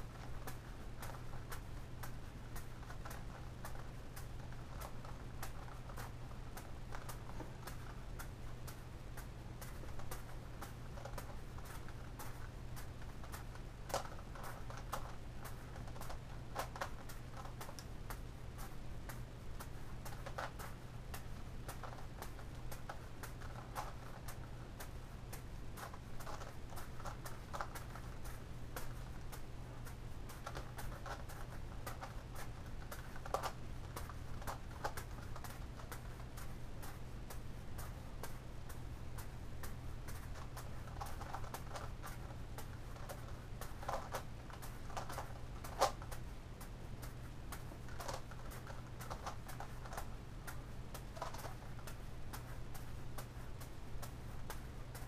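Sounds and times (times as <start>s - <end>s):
steady low hum: 0.0s - 55.0s
plastic puzzle clicking: 47.9s - 52.5s.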